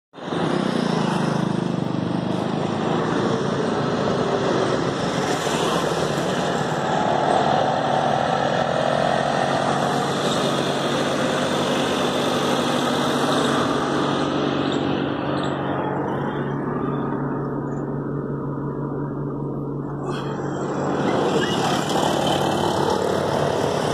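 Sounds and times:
car engine idling: 10.8s - 23.9s.

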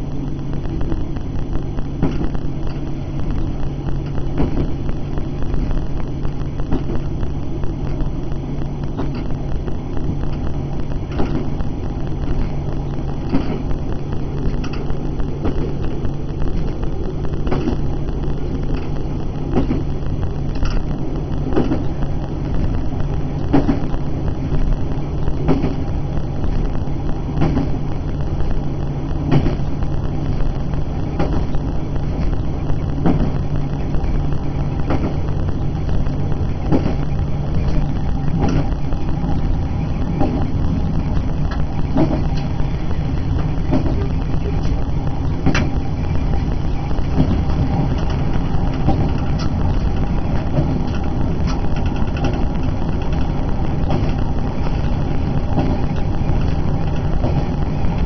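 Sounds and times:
train engine droning: 0.0s - 58.0s.

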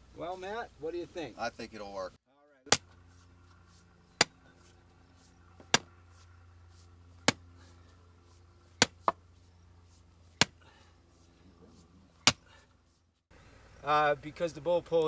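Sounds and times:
sledgehammer clanking on steel rod: 2.7s - 3.0s, 4.2s - 4.4s.

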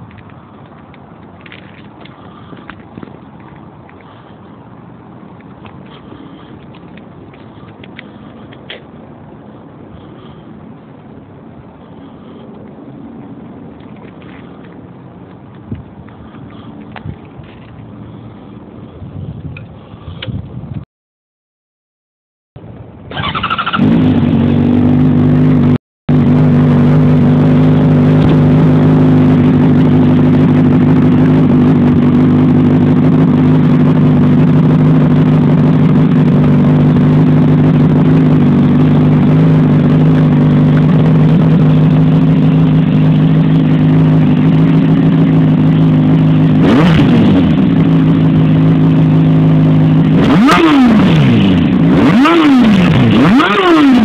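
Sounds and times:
motorcycle engine idling: 1.4s - 4.7s, 23.1s - 54.0s
motorcycle engine revving: 23.1s - 54.0s.

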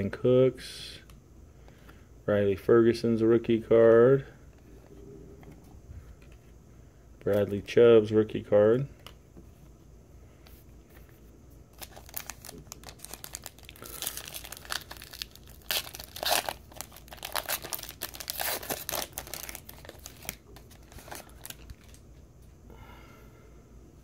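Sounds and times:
foil wrapper crinkling and tearing: 11.7s - 22.0s.

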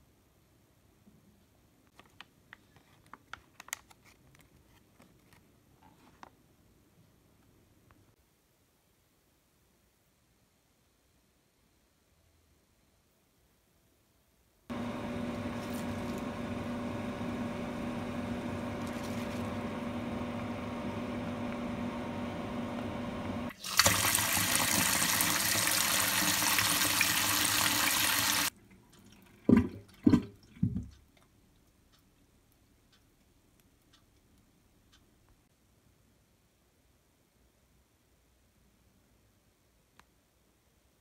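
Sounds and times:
tap water running into colander: 23.5s - 30.8s.

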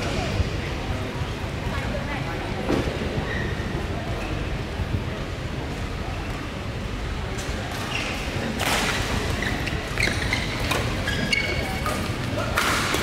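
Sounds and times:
low hum of hall: 0.0s - 13.0s
shoes squeaking on court: 7.7s - 12.4s.

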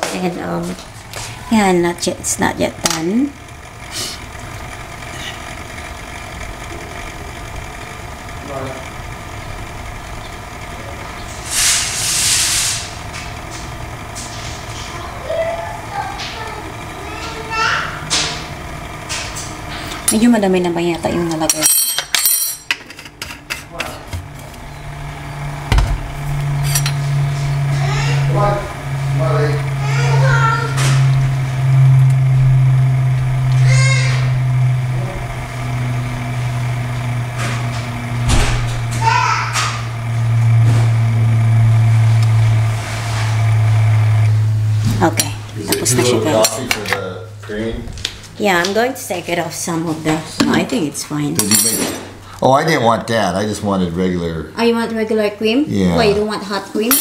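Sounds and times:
milk frother humming: 0.0s - 57.0s
loud hiss: 11.4s - 13.1s.

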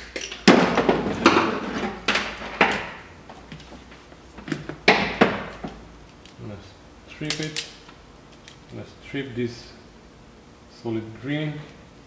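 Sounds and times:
wire cutters snipping: 7.2s - 7.8s.

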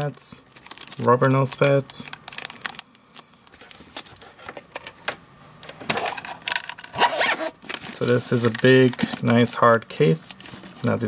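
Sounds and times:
plastic zip bag crinkling: 0.4s - 4.4s, 6.0s - 11.0s
sunglasses case rustling: 5.8s - 9.4s.

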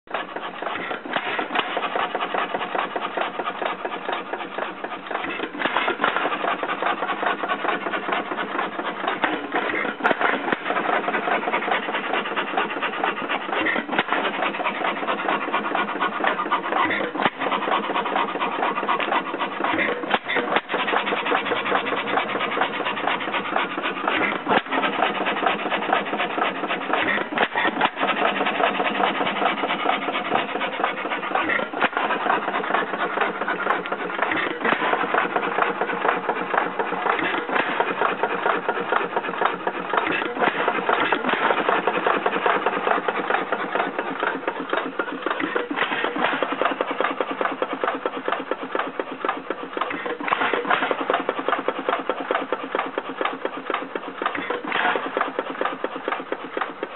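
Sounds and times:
engine clatter: 0.0s - 56.9s
engine firing knock: 0.6s - 56.9s.

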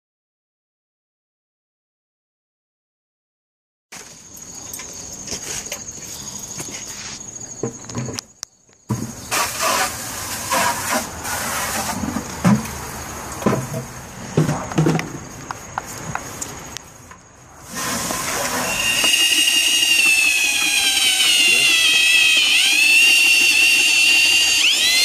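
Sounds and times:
high-pitched insect trill: 4.0s - 9.9s, 15.2s - 25.0s
passing traffic: 9.4s - 19.6s.

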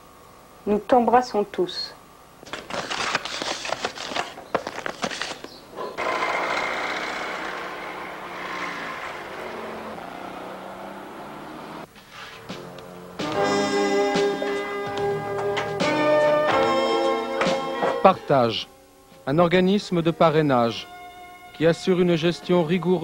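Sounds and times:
street traffic noise: 5.7s - 13.4s.

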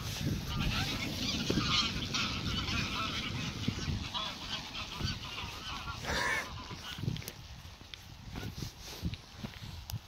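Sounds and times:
geese honking: 0.0s - 7.7s.

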